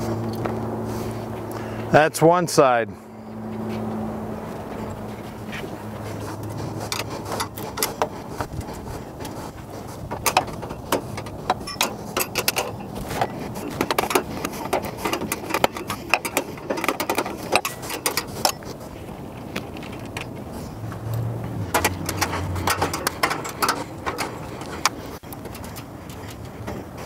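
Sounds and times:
wrench clicking and clinking: 10.2 - 18.7, 21.1 - 25.0.

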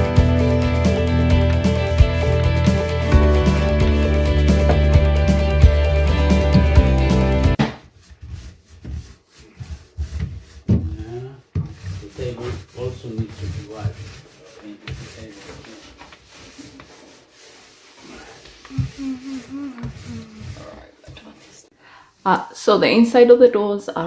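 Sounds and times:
paint roller rubbing: 0.2 - 21.7
faint voice: 18.1 - 21.0.

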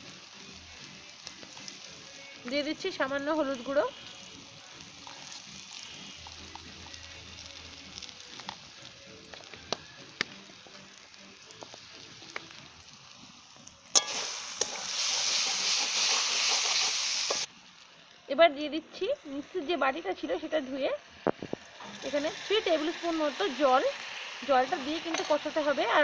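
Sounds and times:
spice paste sizzling in oil: 0.0 - 26.0
loud hiss: 13.9 - 17.5.

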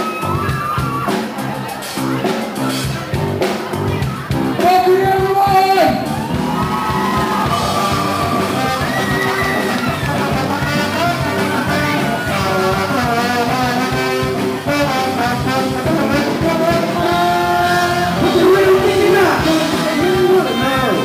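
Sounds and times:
live rock band playing: 0.0 - 21.0
trombone melody: 7.4 - 21.0.

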